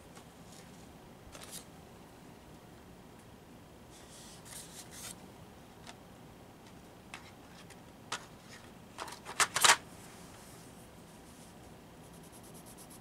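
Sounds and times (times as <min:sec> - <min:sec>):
pencil shading on paper: 0:12.1 - 0:13.0.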